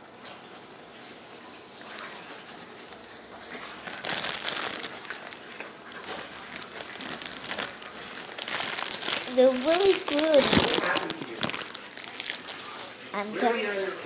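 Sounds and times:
wrapper crinkling and rustling: 3.4s - 13.8s.

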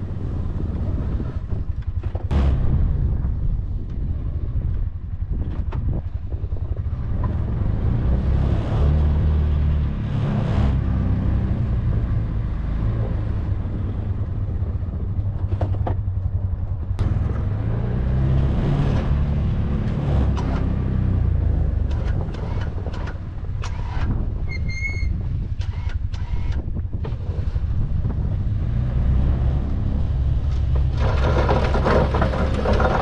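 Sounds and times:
engine running under load: 0.0s - 24.4s, 25.1s - 33.0s
plow blade knocks and scrapes: 30.5s - 33.0s.

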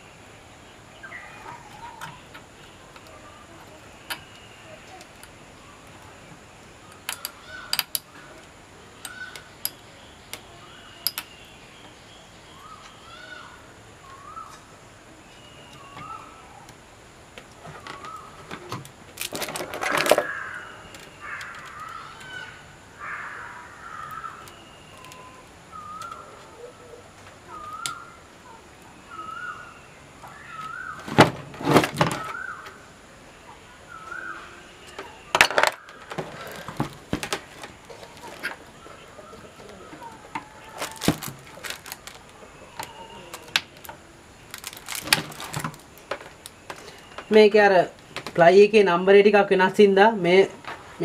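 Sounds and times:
bird chirping: 0.0s - 16.8s, 17.6s - 18.7s, 19.8s - 31.2s, 32.0s - 51.0s.

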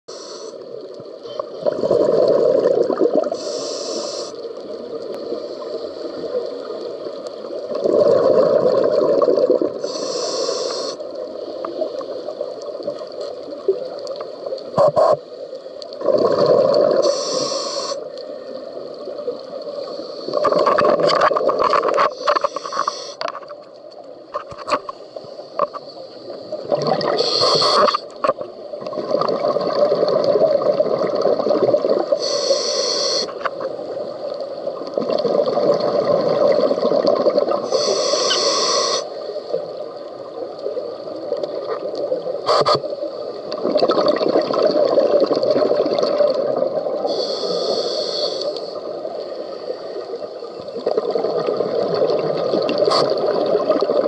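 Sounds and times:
regulator hiss: 0.1s - 0.8s, 3.3s - 6.1s, 9.8s - 12.2s, 17.0s - 18.6s, 22.1s - 23.2s, 25.3s - 28.3s, 32.1s - 33.5s, 37.6s - 39.6s, 47.0s - 50.5s
exhaled bubbles rushing: 1.6s - 3.4s, 7.6s - 9.8s, 15.9s - 17.1s, 26.6s - 28.0s, 28.8s - 32.2s, 34.8s - 37.6s, 43.5s - 47.1s, 50.7s - 54.0s.

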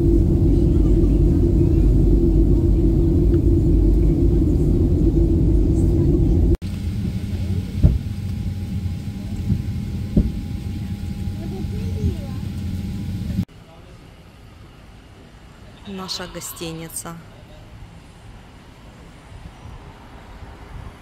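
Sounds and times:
airliner cabin rumble: 0.0s - 13.5s
steady cabin hum: 0.0s - 13.5s.

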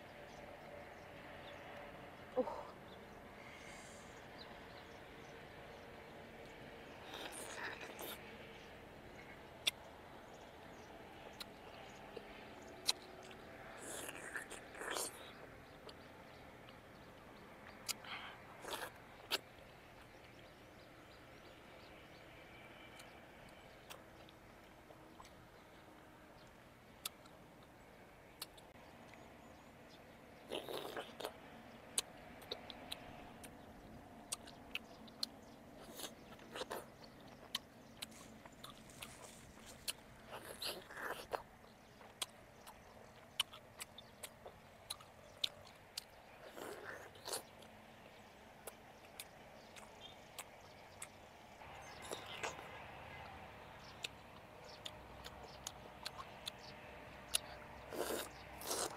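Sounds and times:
fruit chewed with closed lips: 7.0s - 8.4s, 11.2s - 16.8s, 17.6s - 20.2s, 23.8s - 25.4s, 26.4s - 27.7s, 28.4s - 29.3s, 30.4s - 33.6s, 34.2s - 51.2s, 51.9s - 52.8s, 54.0s - 58.9s.

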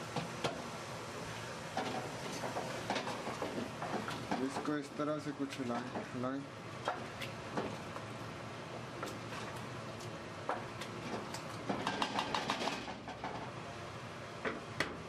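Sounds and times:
frying hiss: 0.0s - 12.0s.

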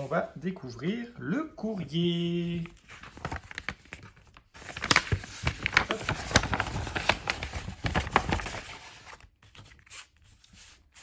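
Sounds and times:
paper envelope crinkling: 2.5s - 11.0s.

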